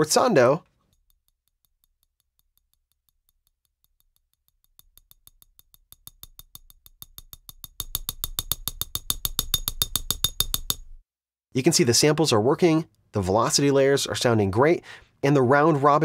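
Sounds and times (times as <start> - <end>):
chopstick clicking on ramekin: 3.8 - 11.0.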